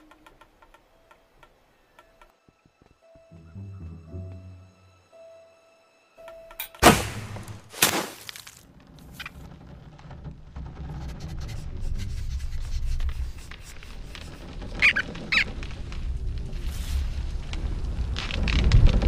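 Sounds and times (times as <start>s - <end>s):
short high squeaks: 14.2s - 15.6s.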